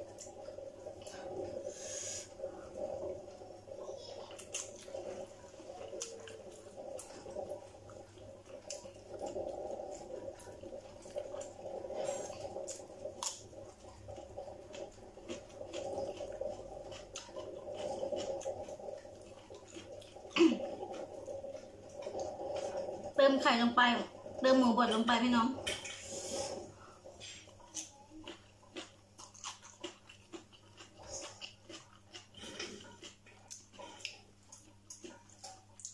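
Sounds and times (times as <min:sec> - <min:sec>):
chewing and lip smacks: 0:12.3 - 0:22.9, 0:27.5 - 0:35.9.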